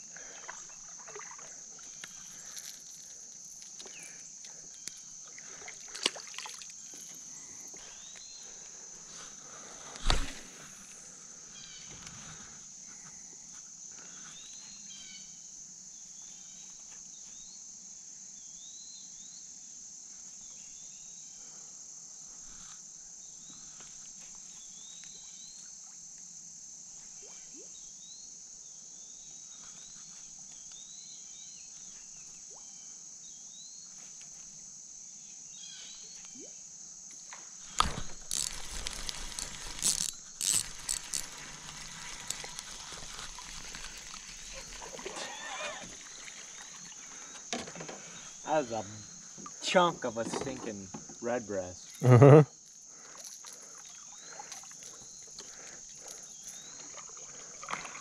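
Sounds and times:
high insect drone: 0.0 - 58.0
fishing gear knocking and rattling: 37.7 - 44.8.

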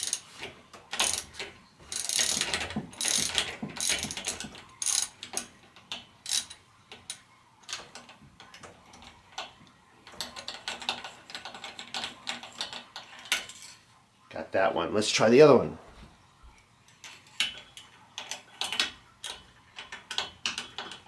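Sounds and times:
socket wrench ratchet clicking: 1.0 - 1.3, 1.9 - 5.5, 6.3 - 6.6.

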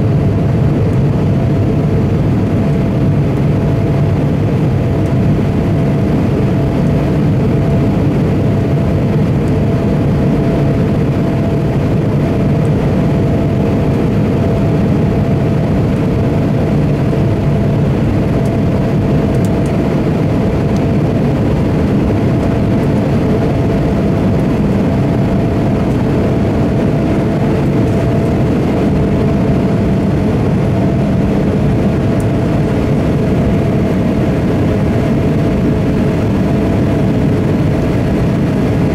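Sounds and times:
jet engine drone: 0.0 - 38.9.

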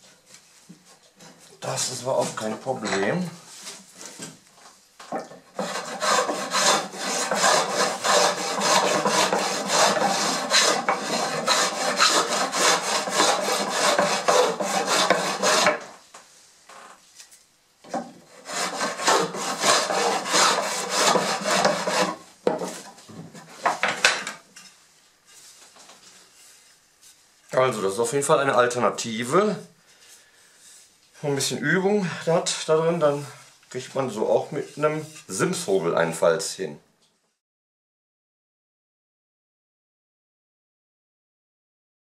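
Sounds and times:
hand plane rasping on wood: 5.6 - 15.9, 18.3 - 22.8.

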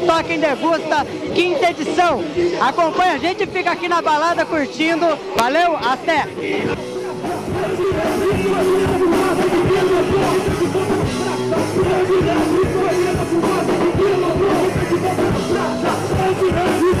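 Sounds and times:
drums: 0.0 - 17.0
electric guitar: 6.3 - 17.0
person singing into a microphone: 6.4 - 17.0
rock band playing: 6.7 - 17.0.

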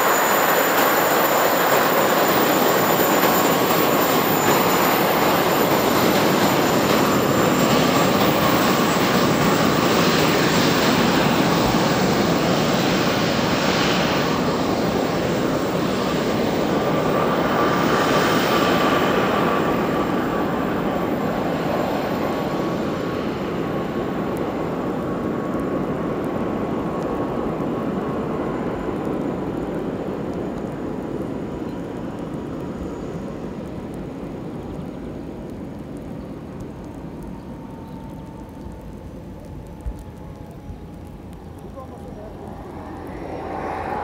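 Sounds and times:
model jet turbines whining: 38.8 - 44.0.

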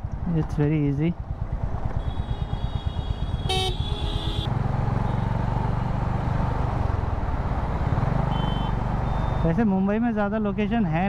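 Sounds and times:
motorcycle engine running: 0.0 - 8.2
vehicle horn: 2.0 - 4.5.

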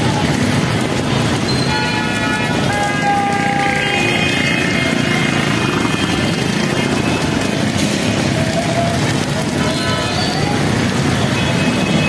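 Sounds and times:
heavy rain hissing: 0.0 - 12.0
traffic on wet street: 0.0 - 12.0
vehicle horns: 1.5 - 7.5, 9.5 - 12.0.

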